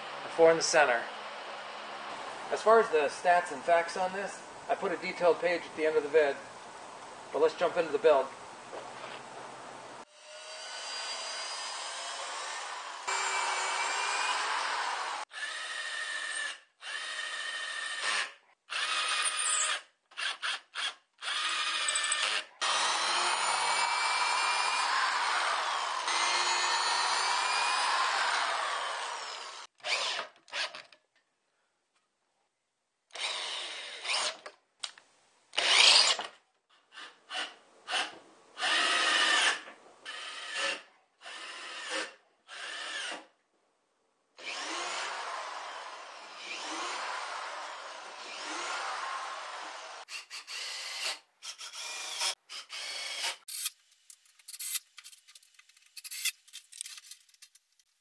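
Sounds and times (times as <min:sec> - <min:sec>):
cordless drill driving screws: 0:10.1 - 0:30.9, 0:33.1 - 0:34.6, 0:35.6 - 0:43.3, 0:44.4 - 0:53.7, 0:54.4 - 0:54.8, 0:55.9 - 0:57.5.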